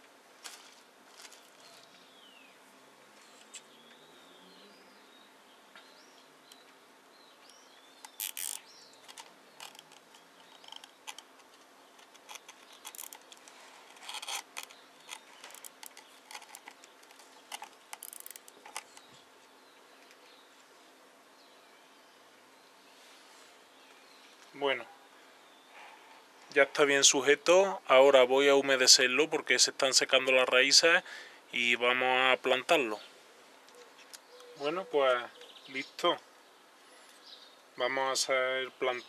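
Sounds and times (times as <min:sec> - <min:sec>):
birds chirping faintly: 0:00.0 - 0:39.0
cable ties clicking and scraping: 0:08.0 - 0:19.2.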